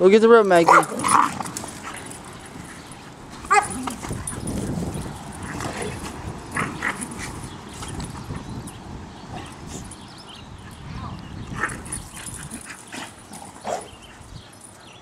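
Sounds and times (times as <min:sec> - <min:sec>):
dog barking: 0:00.7 - 0:01.3.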